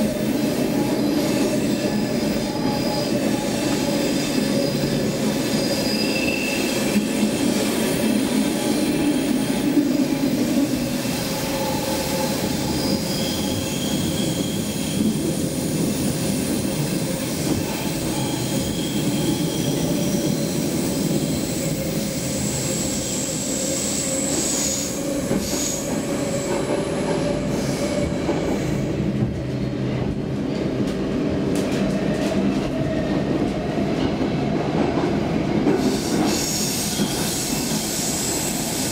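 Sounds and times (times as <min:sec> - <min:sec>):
train wheels rumbling on rail: 0:00.0 - 0:38.9
high wheel squeals: 0:00.9 - 0:06.9, 0:11.4 - 0:15.2, 0:17.9 - 0:25.9.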